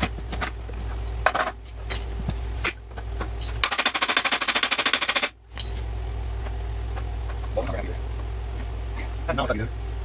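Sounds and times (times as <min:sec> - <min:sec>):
impact wrench hammering: 0:03.6 - 0:05.4.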